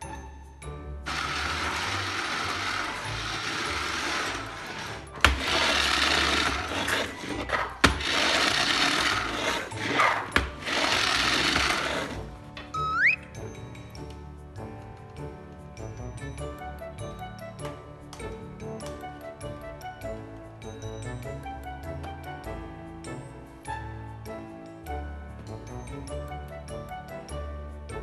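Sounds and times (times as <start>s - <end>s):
toy vacuum motor whirring: 1.0s - 13.2s
beads churning in canister: 1.1s - 12.4s.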